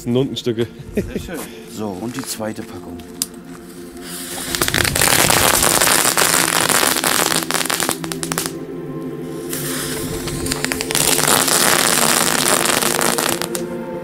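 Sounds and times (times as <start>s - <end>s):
firecrackers crackling: 4.0s - 8.6s, 9.5s - 13.7s.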